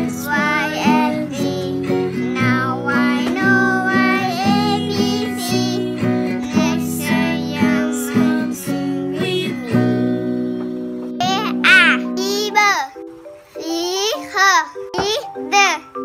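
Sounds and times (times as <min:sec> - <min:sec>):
strummed acoustic guitar: 0:00.0 - 0:12.6
child singing: 0:00.0 - 0:12.9.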